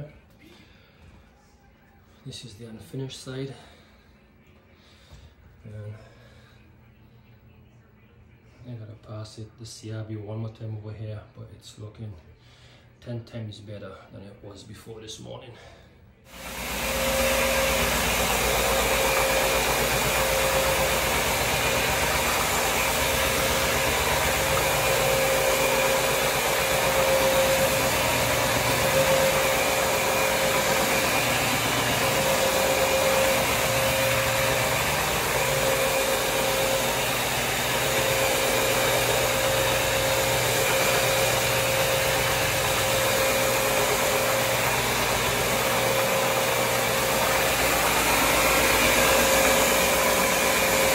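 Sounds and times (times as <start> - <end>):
brushes scrubbing wet floor: 16.3 - 50.9
floor scrubbing machine running: 16.3 - 50.9
steady machine whine: 16.3 - 50.9.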